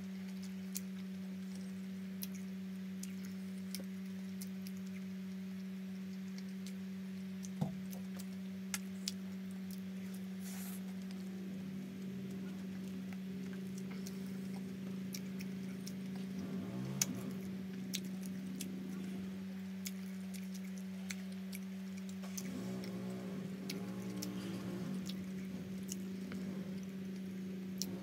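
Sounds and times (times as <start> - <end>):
low hum: 0.0 - 28.0
person chewing food: 6.0 - 28.0.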